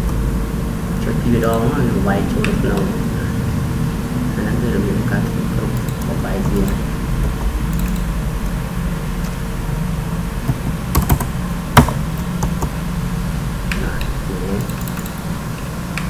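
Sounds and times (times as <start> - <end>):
steady low hum: 0.0 - 16.0
computer keyboard keystrokes: 5.8 - 8.1, 10.5 - 12.7, 14.6 - 15.2.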